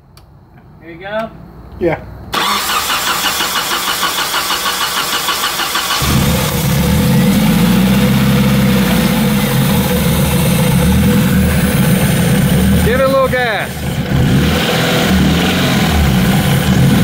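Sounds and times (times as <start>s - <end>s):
engine cranking on starter: 2.3s - 7.4s
engine running: 2.3s - 17.0s.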